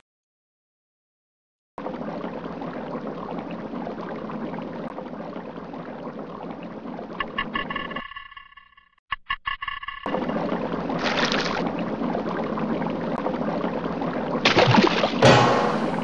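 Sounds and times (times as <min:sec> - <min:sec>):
water sloshing and splashing: 0:01.8 - 0:07.7, 0:10.1 - 0:16.0.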